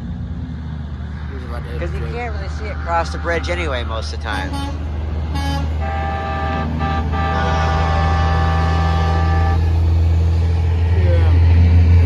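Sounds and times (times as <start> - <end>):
diesel engine rumble: 0.0 - 12.0
truck air horn blast: 4.3 - 9.8.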